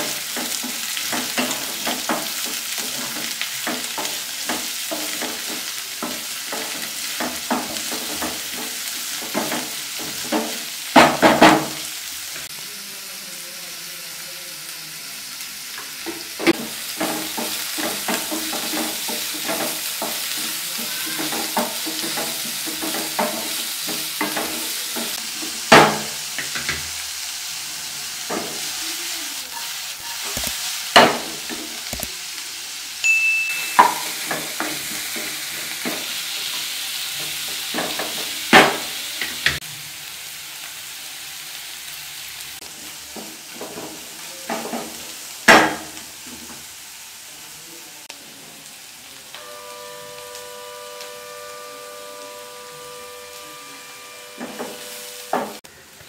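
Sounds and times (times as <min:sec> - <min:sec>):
vegetables sizzling in a pan: 0:00.0 - 0:56.0
spatula knocking on pan: 0:00.3 - 0:11.8, 0:16.1 - 0:26.9, 0:31.0 - 0:31.7, 0:33.8 - 0:36.6, 0:37.2 - 0:39.6, 0:43.2 - 0:46.0, 0:54.4 - 0:55.6
wooden spatula scraping pan: 0:51.4 - 0:55.6.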